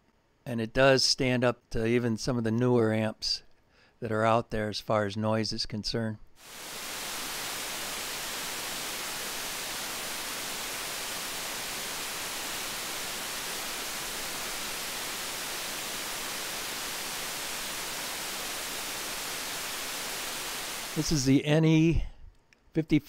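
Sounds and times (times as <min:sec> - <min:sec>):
steady electronic hiss: 0:06.4 - 0:22.0.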